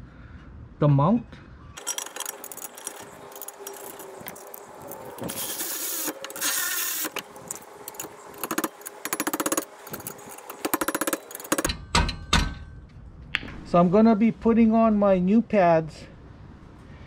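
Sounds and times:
electric ratchet running: 1.8 - 11.7
ratchet rapid clicking: 7.9 - 11.7.

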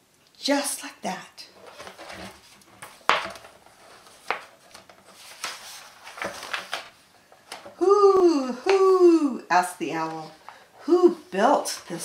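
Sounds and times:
book pages turning: 1.6 - 7.8.

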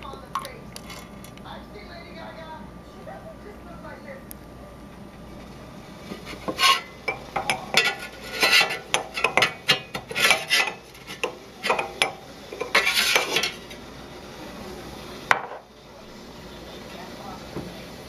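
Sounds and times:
glass and metal clinking: 6.4 - 13.8.

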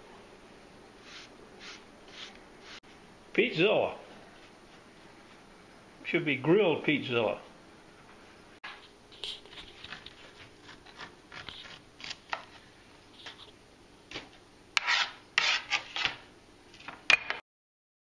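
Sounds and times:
knife scraping corn kernels: 9.2 - 13.5, 14.8 - 16.2.

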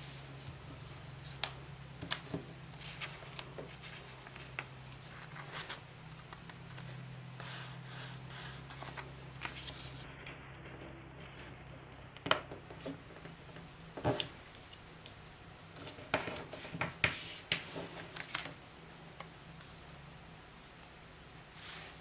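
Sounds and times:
paper folding rustles: 0.2 - 11.6, 15.8 - 18.6.

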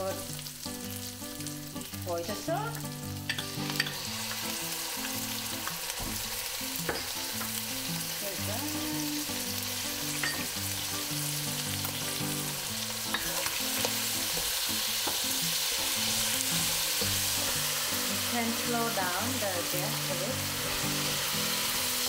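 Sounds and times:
chicken sizzling in a wok: 0.0 - 22.0
wooden spoon tapping wok: 13.1 - 15.3.

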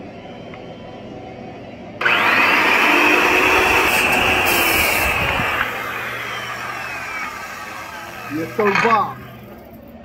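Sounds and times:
power tool motor whining: 2.0 - 9.8.

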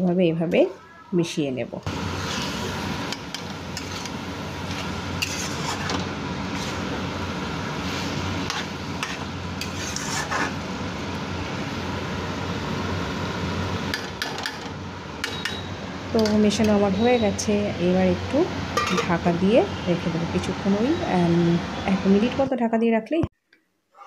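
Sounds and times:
metal spatula scraping pan: 3.3 - 6.9, 8.4 - 10.6.

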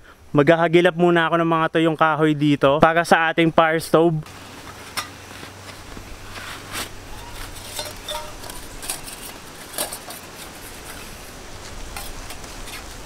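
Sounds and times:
metal panels clinking and scraping: 4.6 - 13.0
metallic knock ringing: 7.7 - 8.5.

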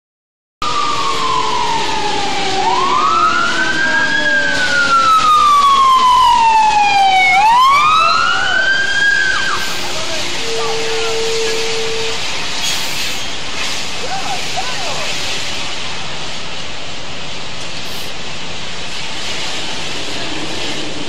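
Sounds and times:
emergency siren wailing: 0.6 - 12.5.

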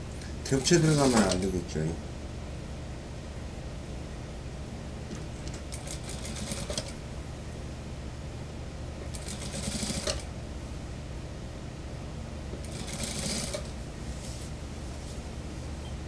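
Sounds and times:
steady low hum: 0.0 - 16.0
sewing machine stitching: 0.6 - 1.4, 5.7 - 7.0, 9.1 - 10.2, 12.6 - 13.7.

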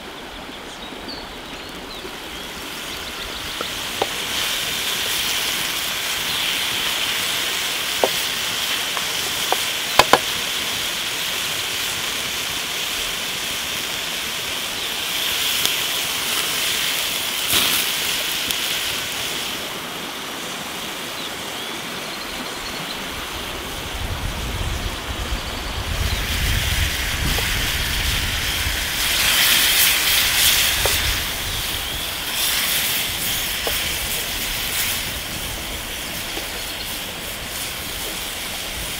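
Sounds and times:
sharp crackles: 1.7 - 10.6, 13.8 - 19.6, 25.9 - 38.9
meat sizzling in a skillet: 2.4 - 20.2, 25.4 - 38.9.

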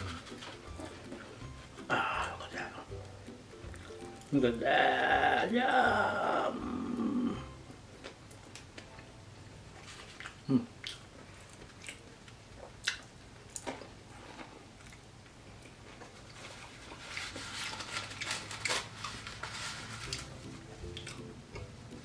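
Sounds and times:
chewing crisp pastry: 0.0 - 4.3, 9.7 - 21.3.

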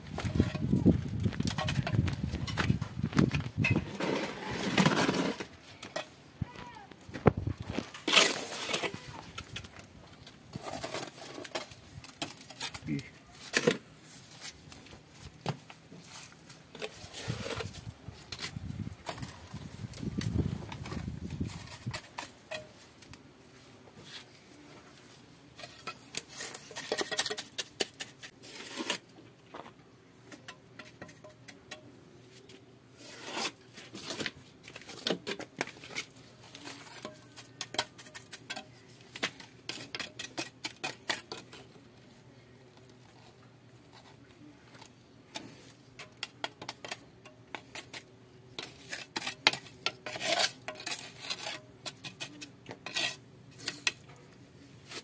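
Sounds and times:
trowel scraping mortar: 3.6 - 6.1, 7.7 - 9.7, 10.5 - 13.8, 16.8 - 22.8, 25.6 - 29.1, 32.9 - 41.8, 45.3 - 54.1.

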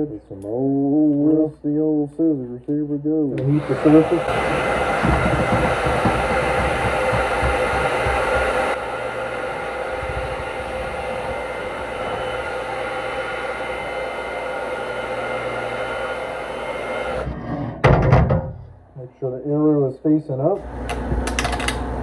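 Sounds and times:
hot-air blower running: 3.4 - 17.3, 20.6 - 22.0.

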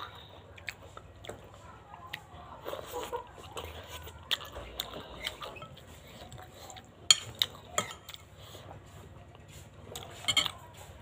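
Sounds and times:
cutlery clinking on ceramic bowl: 7.1 - 8.2, 10.2 - 10.6.

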